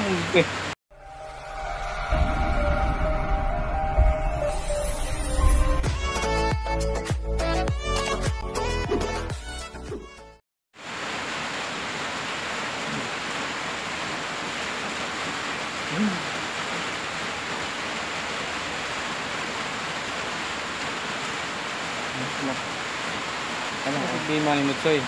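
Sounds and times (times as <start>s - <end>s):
intro music: 0.9s - 8.8s.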